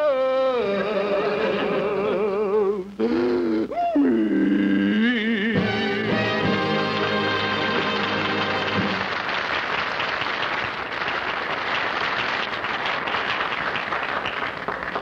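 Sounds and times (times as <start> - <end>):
audience applauding: 6.1 - 15.0.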